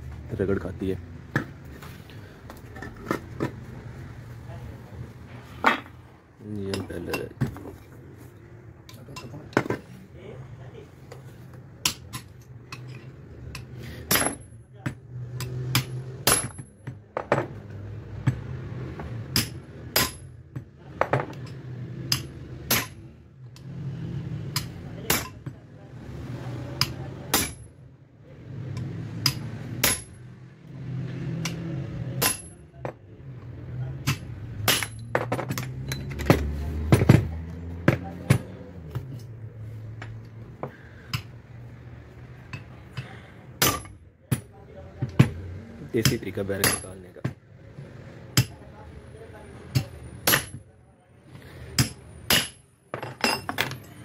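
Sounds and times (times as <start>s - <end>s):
hammer striking steel: 13.5s - 14.6s, 15.4s - 16.7s, 19.3s - 20.3s, 22.1s - 23.0s, 24.5s - 25.4s, 26.8s - 27.7s, 29.2s - 30.2s, 31.4s - 32.6s, 34.0s - 36.4s, 42.5s - 44.6s, 46.0s - 47.0s, 49.7s - 50.6s, 51.8s - 53.5s.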